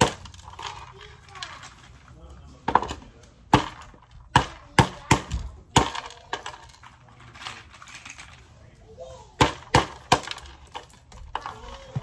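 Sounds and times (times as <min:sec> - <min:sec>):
mallet cracking walnuts on wood: 0:02.7 - 0:06.1, 0:09.4 - 0:11.4.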